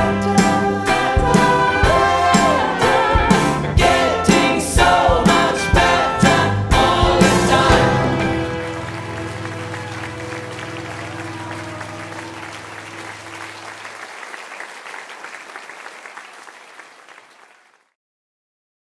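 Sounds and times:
audience applause: 0:07.5 - 0:17.9.

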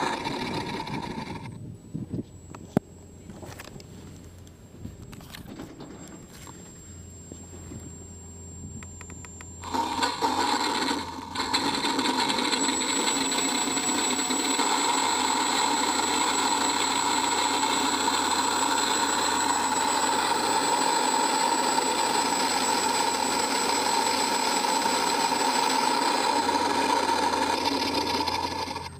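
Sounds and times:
electric motors spinning propellers: 0:00.0 - 0:02.8, 0:09.0 - 0:28.9
simulated piston engine drone: 0:06.1 - 0:28.9.

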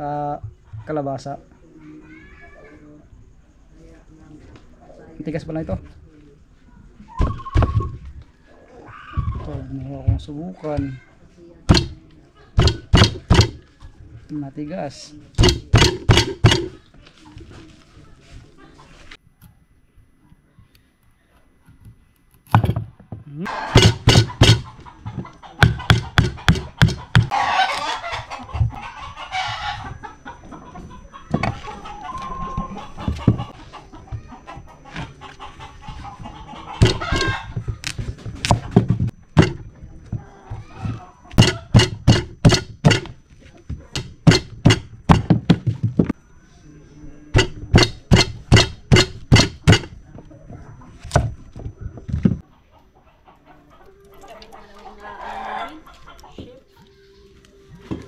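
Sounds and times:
chicken calling: 0:07.0 - 0:09.8, 0:23.4 - 0:43.2, 0:52.4 - 0:58.0
knife chopping on wooden board: 0:11.7 - 0:12.0, 0:12.6 - 0:13.6, 0:15.4 - 0:16.8, 0:23.7 - 0:24.7, 0:25.6 - 0:27.3, 0:36.8 - 0:37.3, 0:38.4 - 0:39.6, 0:41.4 - 0:43.1, 0:43.9 - 0:45.6, 0:47.4 - 0:49.9.

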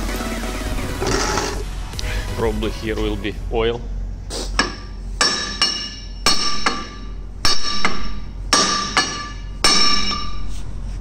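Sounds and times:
hammer striking metal: 0:04.6 - 0:10.5.

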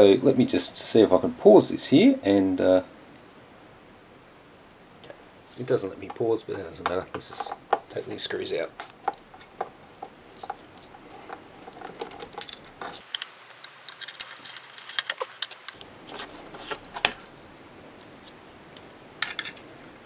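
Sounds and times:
screwdriver and screws clicking: 0:11.7 - 0:15.8.

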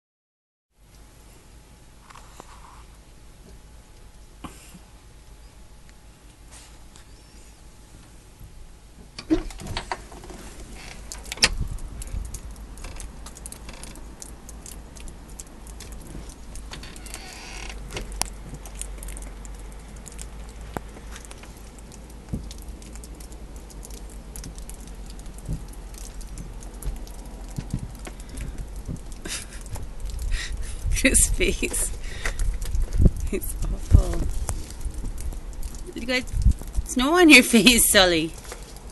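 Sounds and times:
low rumble: 0:07.5 - 0:36.9
clicks and crunches: 0:09.2 - 0:30.4, 0:32.0 - 0:36.9.

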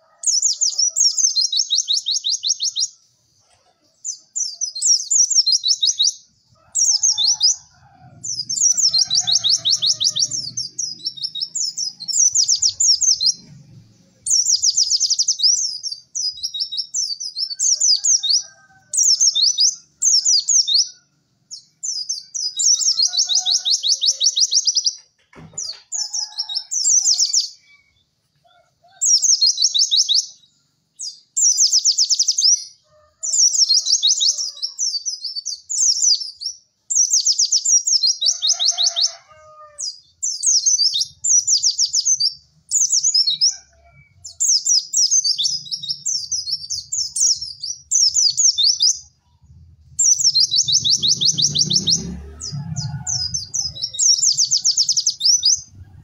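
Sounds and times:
bird twittering trills: 0:03.6 - 0:28.0, 0:50.0 - 0:56.0.

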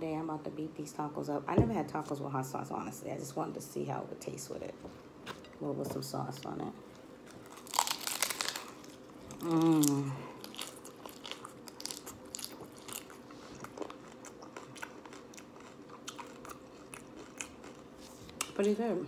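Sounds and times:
taco shell crunching: 0:07.3 - 0:18.5.

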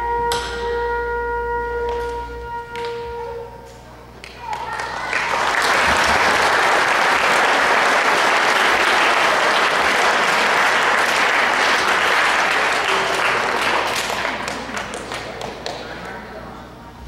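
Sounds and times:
audience applauding: 0:04.2 - 0:16.3.

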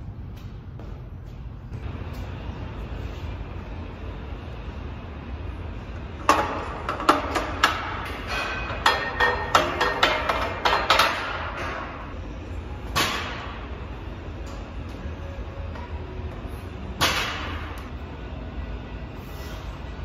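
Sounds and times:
metal rack clanking: 0:06.3 - 0:12.1.

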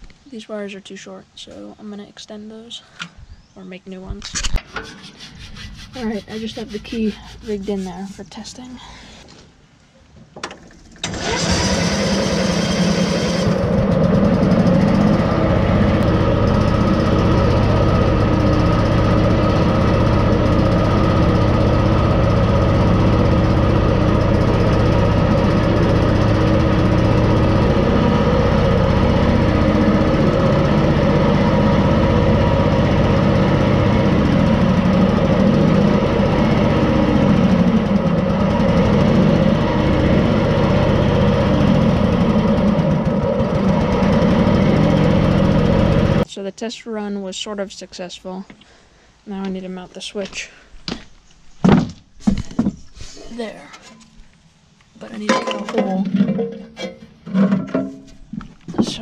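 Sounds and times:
engine starting and running: 0:10.3 - 0:46.3, 0:55.2 - 0:59.0.

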